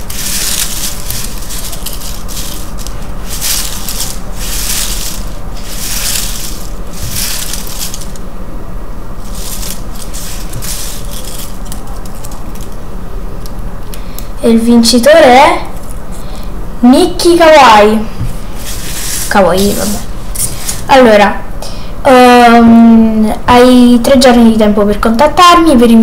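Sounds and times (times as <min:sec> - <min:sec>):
paper slips rustling: 0:00.0 - 0:08.2, 0:09.2 - 0:12.8, 0:18.4 - 0:20.9.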